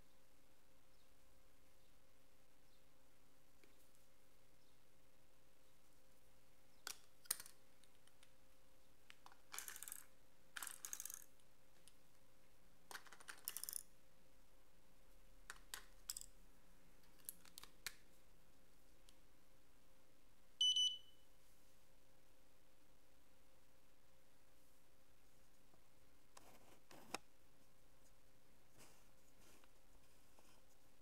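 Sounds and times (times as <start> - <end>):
plastic clicks and rattles: 6.8 - 8.3, 9.1 - 12.0, 12.9 - 13.8, 15.5 - 16.3, 17.0 - 18.0
short high beeps: 20.6 - 21.2.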